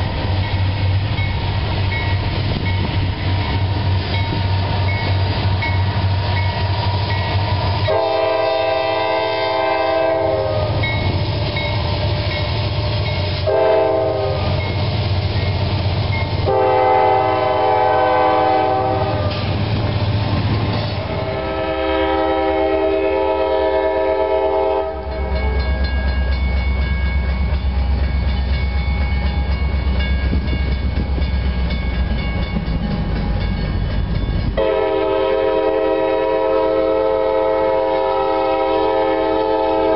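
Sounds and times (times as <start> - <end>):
train wheel clatter: 0.0 - 18.1, 18.8 - 21.5, 25.0 - 35.0
freight train rumble: 0.0 - 39.9
locomotive air horn blasts: 7.0 - 11.7, 13.3 - 14.8, 16.4 - 19.5, 21.1 - 25.6, 34.6 - 39.9.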